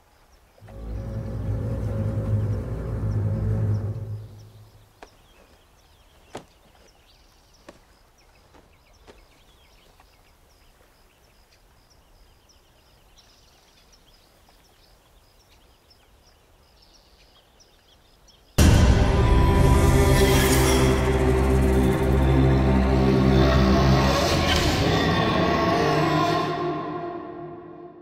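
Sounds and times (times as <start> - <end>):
small birds chirping: 0.0 - 18.6.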